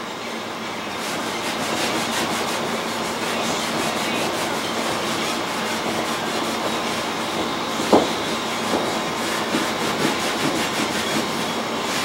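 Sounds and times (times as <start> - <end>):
rag scrubbing an antler: 0.9 - 12.0.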